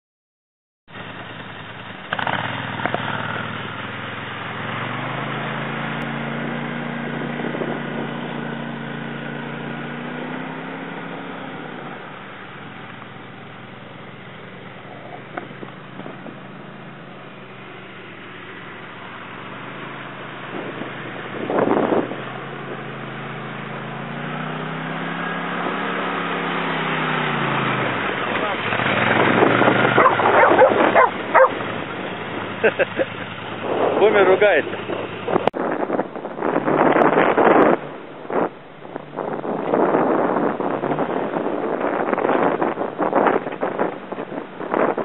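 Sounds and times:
quad bike engine running: 0.9s - 45.0s.

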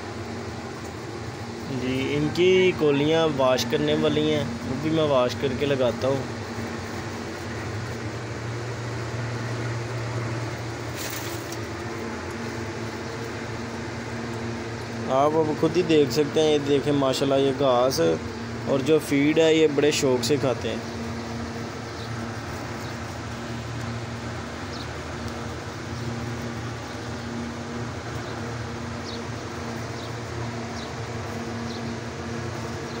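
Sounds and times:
low machine hum: 0.0s - 33.0s.

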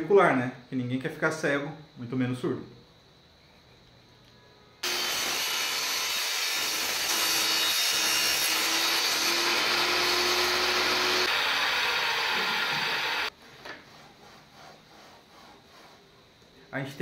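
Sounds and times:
saw blade whine: 4.8s - 13.3s
table saw cutting wood: 4.8s - 15.9s.

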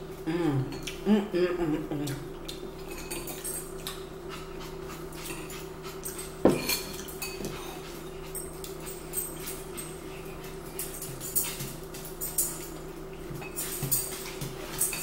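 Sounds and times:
steady low hum: 0.0s - 15.0s
eating sounds: 0.6s - 11.9s
spoons clinking against ceramic bowls: 2.8s - 3.8s, 6.0s - 7.6s, 10.8s - 15.0s.

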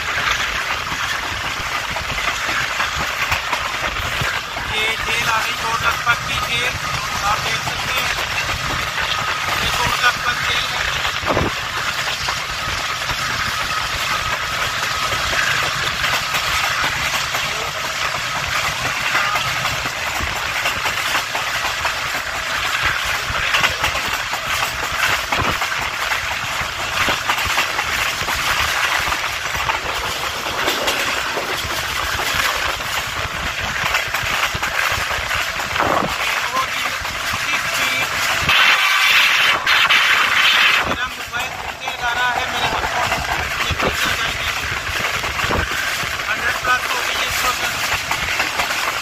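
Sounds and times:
train coaches rumbling: 0.0s - 49.0s
wheels clicking on track: 0.0s - 49.0s.

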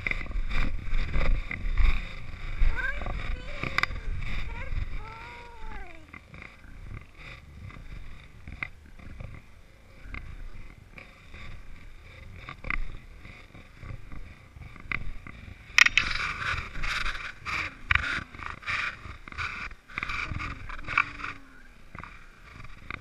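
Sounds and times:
wind rumble: 0.0s - 23.0s
camera handling noise: 15.8s - 21.4s.

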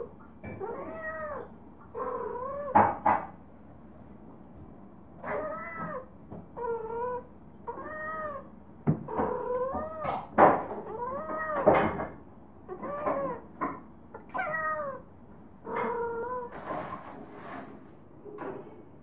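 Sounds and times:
cat yowling: 0.6s - 2.8s, 5.2s - 8.5s, 10.9s - 11.8s, 14.2s - 15.0s, 15.7s - 16.5s.

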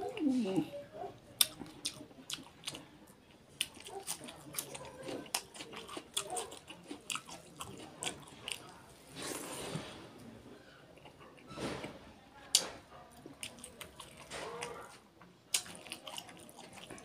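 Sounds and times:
chewing with wet mouth clicks: 1.4s - 2.9s, 3.6s - 8.8s, 12.6s - 17.0s.

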